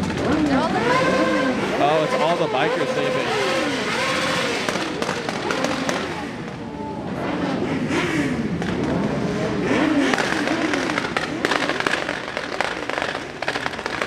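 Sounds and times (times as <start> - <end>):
vehicle engines revving: 0.0 - 14.0
sharp cracks: 3.4 - 6.6, 7.9 - 14.0.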